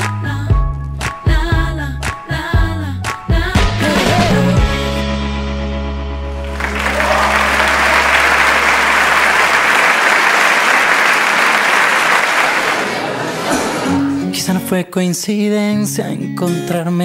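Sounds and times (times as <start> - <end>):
backing track chord held: 4.7 - 10.1
audience applause: 6.4 - 13.8.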